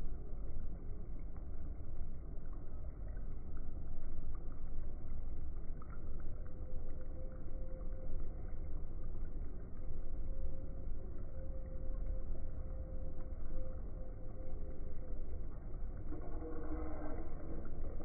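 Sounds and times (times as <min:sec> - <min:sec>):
dough deep-frying in hot fat: 0:00.0 - 0:18.0.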